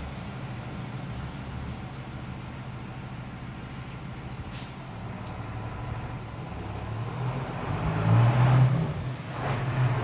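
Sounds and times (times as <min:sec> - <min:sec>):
truck engine approaching: 0:00.0 - 0:10.0.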